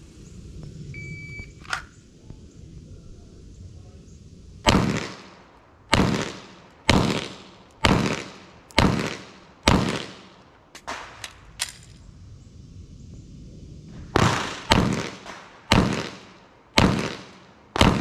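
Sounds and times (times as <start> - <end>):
metallic magazine change clicks: 1.6 - 1.9, 10.7 - 12.0
pistol shots: 4.7 - 11.8, 14.2 - 18.0.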